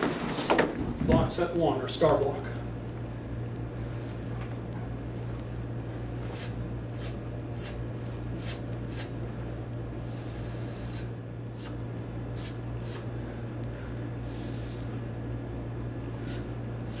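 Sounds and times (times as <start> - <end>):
steady low hum: 0.0 - 17.0
sharp breath hisses: 12.4 - 13.1.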